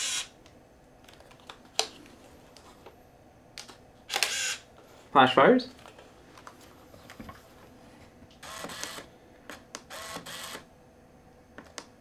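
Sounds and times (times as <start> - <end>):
camera motor winding on: 0.0 - 0.3, 4.1 - 4.6, 8.4 - 9.1, 9.9 - 10.6
camera shutter clatter: 4.1 - 4.6, 8.4 - 9.1.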